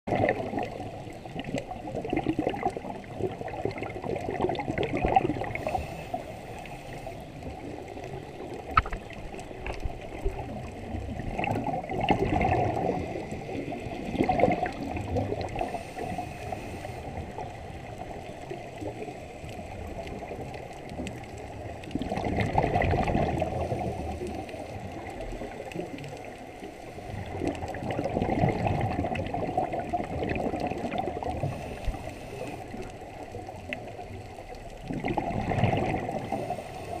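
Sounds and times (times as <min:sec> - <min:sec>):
bubbles gurgling underwater: 0:00.1 - 0:37.0
underwater regulator breathing: 0:05.5 - 0:07.4, 0:15.5 - 0:17.4, 0:31.3 - 0:32.9, 0:36.2 - 0:37.0.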